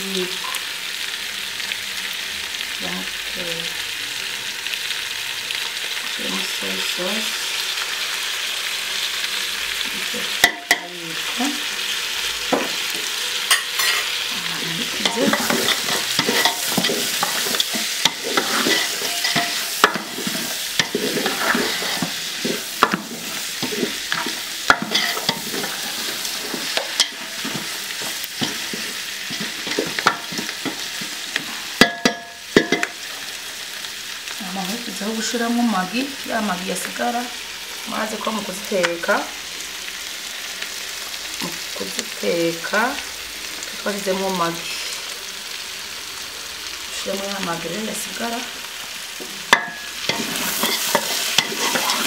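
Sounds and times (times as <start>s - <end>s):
meat sizzling in a pot: 0.0s - 52.0s
wooden spoon scraping metal pot: 14.8s - 33.0s, 49.5s - 52.0s.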